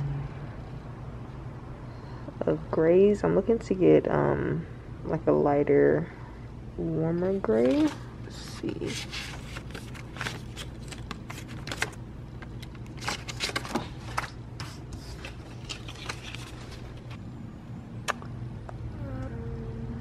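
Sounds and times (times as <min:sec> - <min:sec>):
low background hum: 0:00.0 - 0:20.0
paper cards being leafed through: 0:07.4 - 0:17.2.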